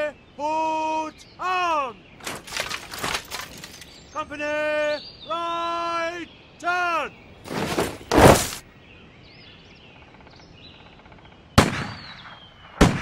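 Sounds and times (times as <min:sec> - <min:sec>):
cannon booms with echo: 0:11.6 - 0:13.0.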